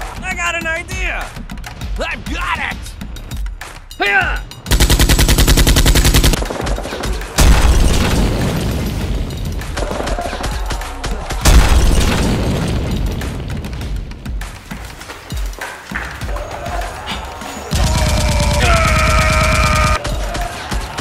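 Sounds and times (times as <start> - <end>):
background music: 0.0 - 21.0
automatic gunfire burst: 4.7 - 8.8
heavy booming gunshots: 4.7 - 10.8, 11.4 - 14.4, 17.7 - 21.0.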